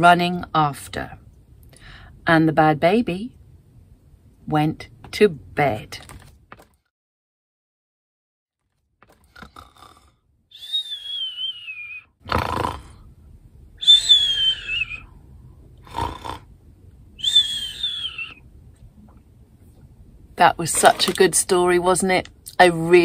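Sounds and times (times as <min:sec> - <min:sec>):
falling whistle: 0:10.5 - 0:12.2, 0:13.8 - 0:15.1, 0:17.2 - 0:18.4
woman's cartoon snore: 0:12.3 - 0:13.0.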